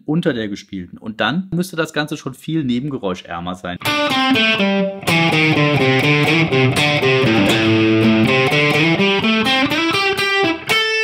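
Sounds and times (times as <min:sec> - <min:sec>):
distorted electric guitar riff: 0:03.8 - 0:11.0.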